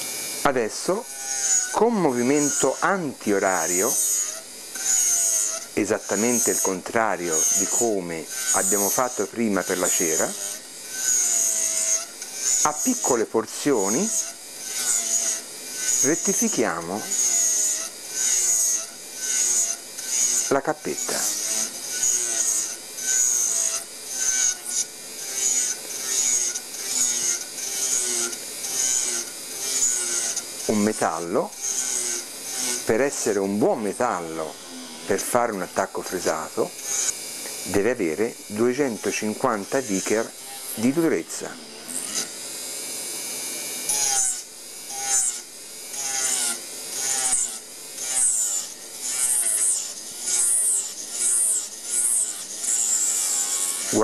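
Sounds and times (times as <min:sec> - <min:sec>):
milling bur rasping metal: 0:00.1 - 0:42.4, 0:43.7 - 0:54.0
motor hum: 0:14.1 - 0:54.0.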